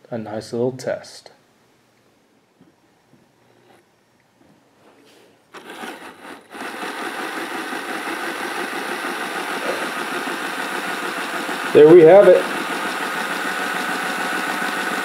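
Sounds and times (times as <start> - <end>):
model locomotive motor whirring: 5.5 - 15.0.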